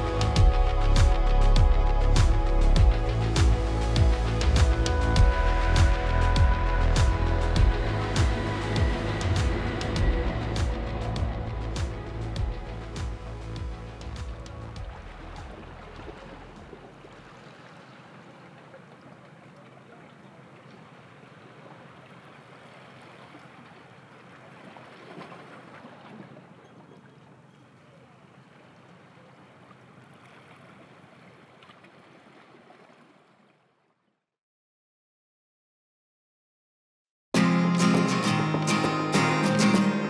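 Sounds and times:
music track: 0:00.0 - 0:16.0, 0:37.4 - 0:40.0
water washing on shore: 0:00.0 - 0:33.6.

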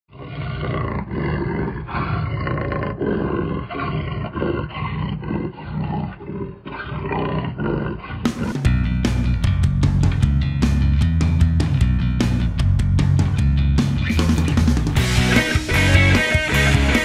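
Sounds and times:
big cat roaring and snarling: 0:00.1 - 0:08.7.

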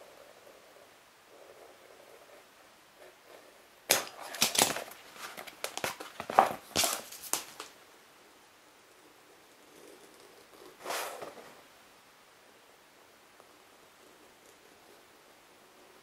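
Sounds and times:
foam parts scuffing on plastic mat: 0:04.0 - 0:07.7.

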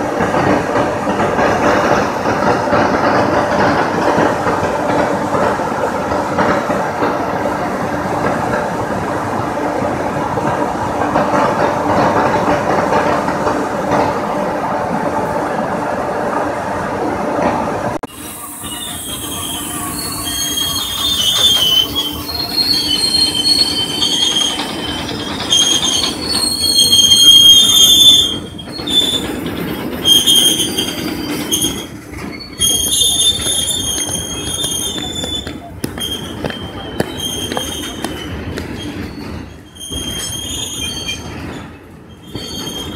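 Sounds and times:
train wheels rumbling on rail: 0:00.0 - 0:42.9
wheel squeal: 0:18.2 - 0:42.9.

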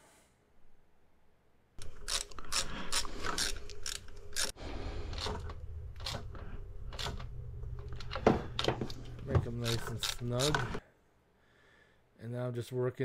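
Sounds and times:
ratchet clicking: 0:01.8 - 0:04.5.

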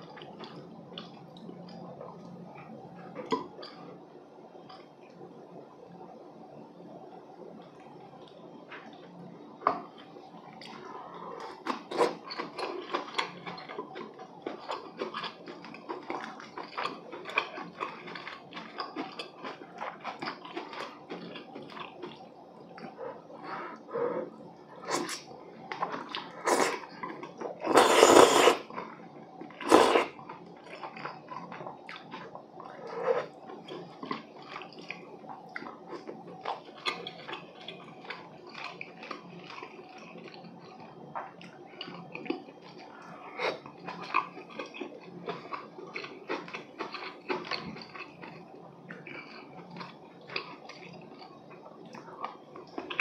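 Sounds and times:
person chewing wetly: 0:00.0 - 0:03.9, 0:09.6 - 0:53.0
slurping: 0:22.8 - 0:28.8, 0:29.5 - 0:35.0.

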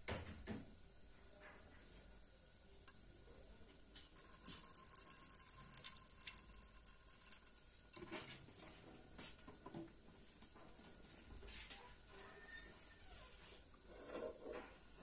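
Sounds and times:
oil crackling in a pan: 0:03.9 - 0:08.3.

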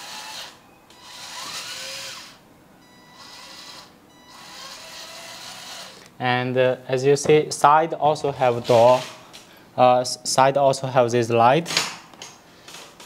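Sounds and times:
electric motor whirring: 0:00.0 - 0:02.4, 0:03.0 - 0:06.1.

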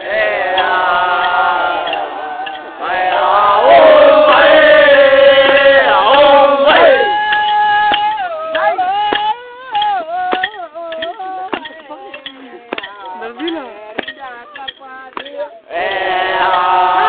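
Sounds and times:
group chanting held note: 0:00.0 - 0:08.0.

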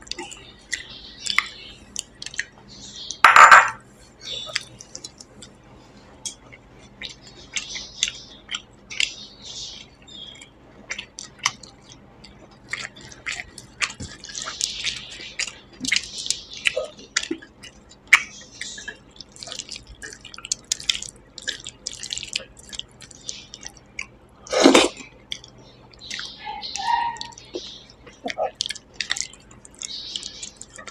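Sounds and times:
chewing and mouth sounds: 0:00.0 - 0:03.2, 0:04.4 - 0:05.6, 0:09.8 - 0:30.9
fingers squishing wet food: 0:09.8 - 0:30.9.

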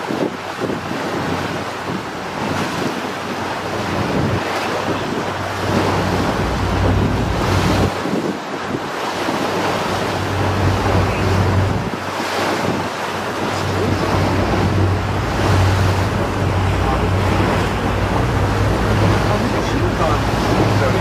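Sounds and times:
boat engine hum: 0:00.0 - 0:21.0
rushing water: 0:00.0 - 0:21.0
wind buffeting microphone: 0:00.0 - 0:21.0.

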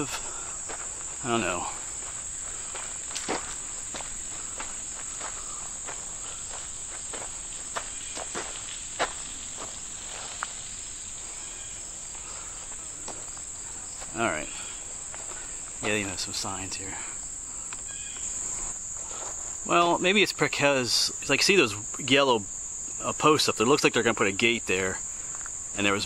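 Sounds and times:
footsteps on gravel and grass: 0:00.0 - 0:19.7
insect chorus drone: 0:00.0 - 0:26.0.

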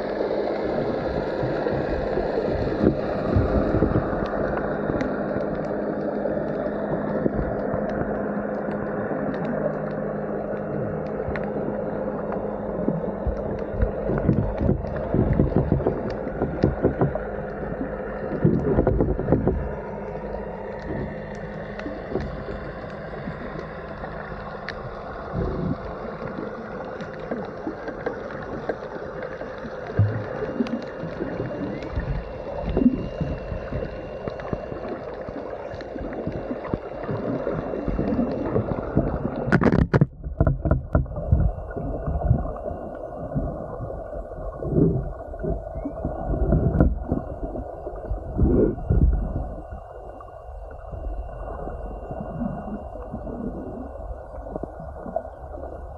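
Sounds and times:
underwater rumble of moving water: 0:00.0 - 0:55.9
underwater knocks and bumps: 0:00.6 - 0:06.1, 0:12.3 - 0:23.7, 0:24.7 - 0:49.6.

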